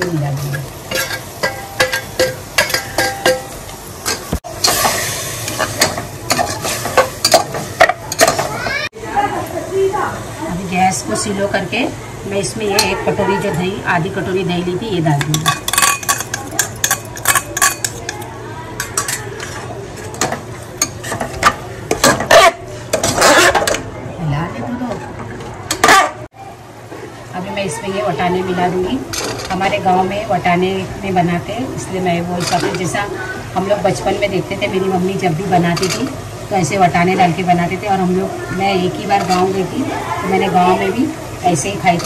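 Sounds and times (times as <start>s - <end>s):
metal spatula scraping pot: 0.0s - 3.4s, 20.8s - 23.8s
oil sizzling: 0.0s - 23.6s, 27.1s - 42.0s
metal spoon scraping pot: 20.8s - 23.8s.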